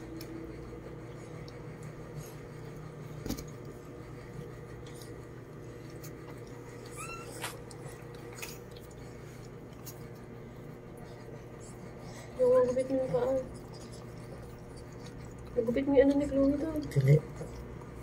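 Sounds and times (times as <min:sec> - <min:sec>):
steady low hum: 0:00.0 - 0:18.0
dog whimpering: 0:06.7 - 0:07.9.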